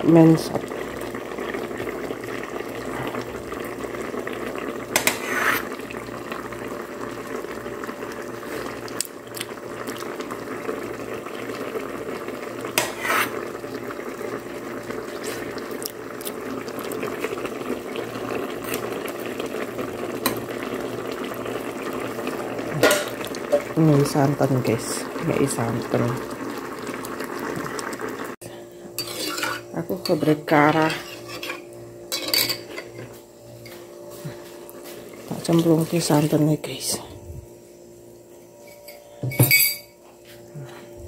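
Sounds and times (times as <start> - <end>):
sauce bubbling in a pot: 0.1 - 33.0.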